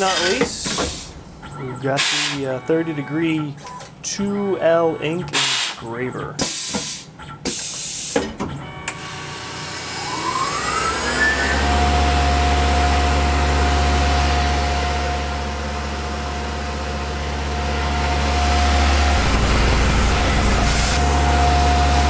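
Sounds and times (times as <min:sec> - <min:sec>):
mill spindle whine: 0:07.8 - 0:22.0
low hum: 0:14.4 - 0:22.0.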